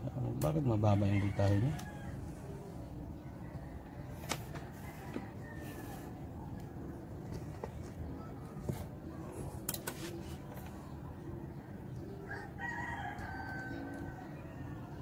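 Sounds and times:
rooster crowing: 0.9s - 2.4s, 12.2s - 15.0s.

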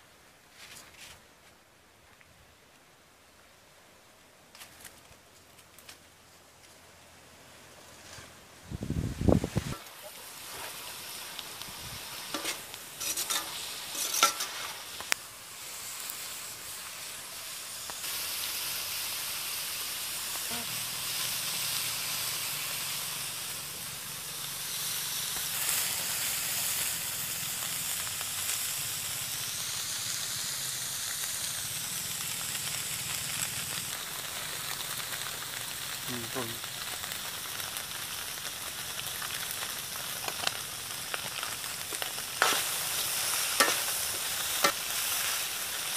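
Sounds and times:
food sizzling in a wok: 7.3s - 45.9s
metal ladle scraping a pan: 12.2s - 14.9s, 42.4s - 44.8s.

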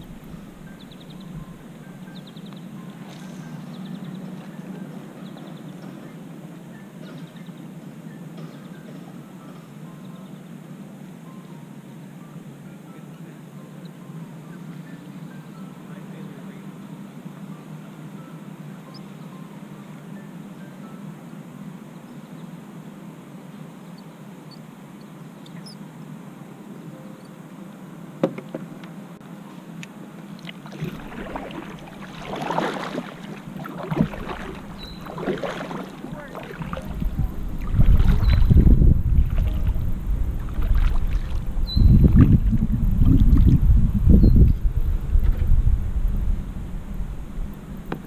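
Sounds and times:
paddle splashing in water: 30.4s - 43.6s
loud low rumble: 36.1s - 47.8s.

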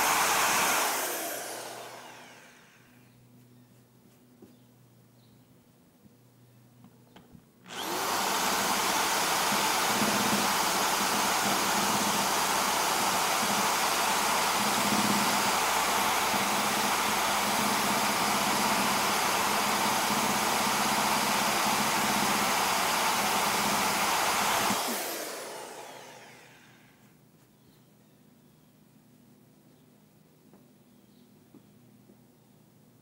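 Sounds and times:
drill whirring: 0.0s - 3.0s, 7.7s - 27.0s.

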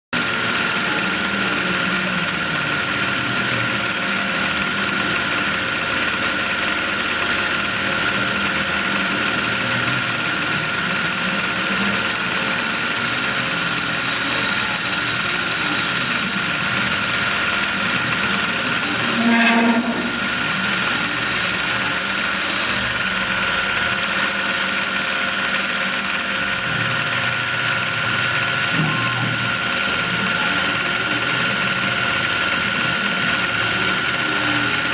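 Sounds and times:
tool chatter: 0.2s - 34.9s
lathe spindle whining: 0.3s - 28.8s
tool cutting metal bar: 13.4s - 26.8s.

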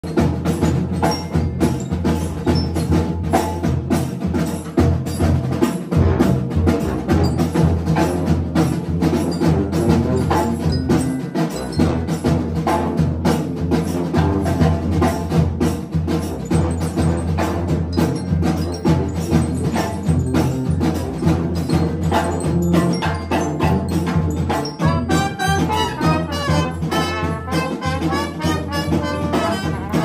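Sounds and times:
percussion strokes: 0.0s - 30.0s
brass band playing: 0.1s - 30.0s.

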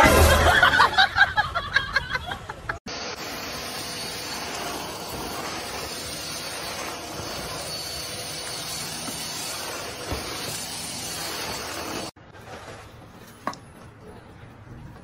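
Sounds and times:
vacuum cleaner running: 2.9s - 12.2s.

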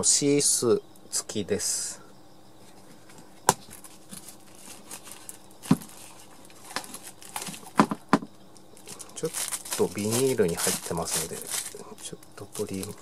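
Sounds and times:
nylon and plastic rustling: 3.6s - 13.0s.

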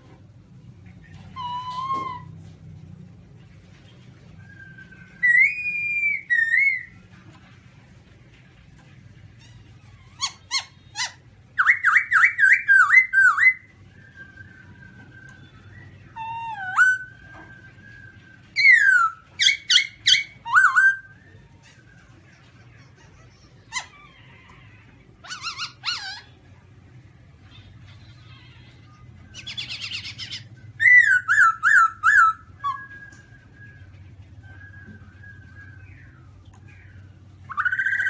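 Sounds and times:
bird singing whistled phrases: 1.3s - 2.4s, 4.4s - 7.0s, 10.2s - 21.5s, 29.3s - 38.0s.

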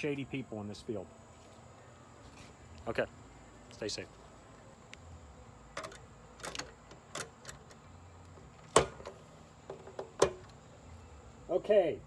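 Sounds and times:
metal clicks and knocks: 5.7s - 7.8s, 8.6s - 10.6s.

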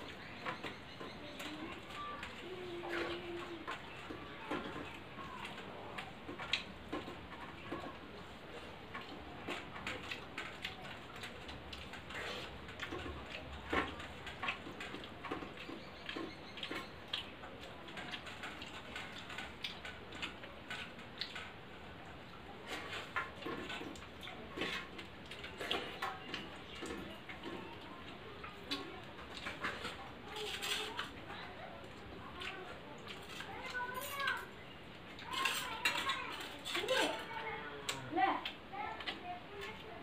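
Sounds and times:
wet chewing and lip-smacking: 8.2s - 33.8s.

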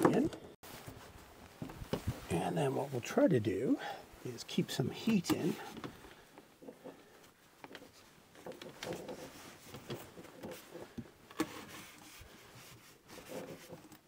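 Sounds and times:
towel rubbing and rustling: 7.8s - 13.9s.

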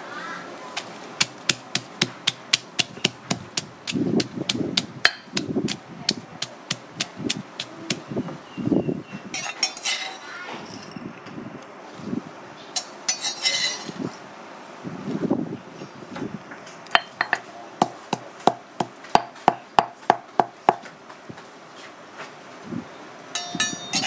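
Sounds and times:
stone pestle pounding in mortar: 1.2s - 8.0s, 17.0s - 20.8s
clinks: 23.4s - 24.0s.

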